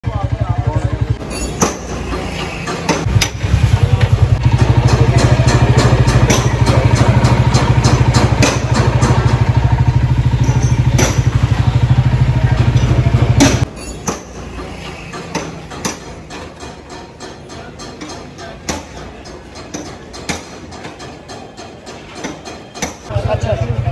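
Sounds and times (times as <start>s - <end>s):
small engine idling: 0.1s - 13.7s, 23.1s - 23.9s
hammer striking chisel on metal: 1.2s - 23.1s.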